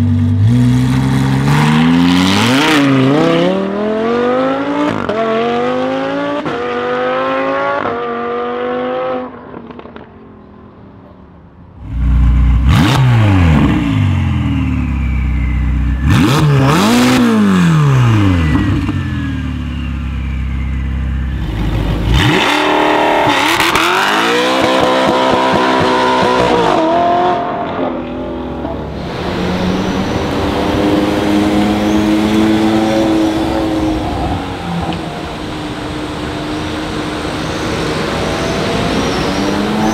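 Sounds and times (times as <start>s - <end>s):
car engine accelerating with upshifts: 0.0s - 10.2s, 11.8s - 19.6s, 21.2s - 39.9s
car engine revving in blips: 11.8s - 19.3s, 20.2s - 39.9s
car pulling away: 11.8s - 39.9s.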